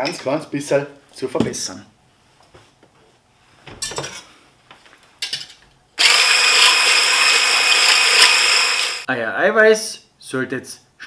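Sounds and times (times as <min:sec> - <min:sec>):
electric hand blender whining: 0:06.0 - 0:09.1.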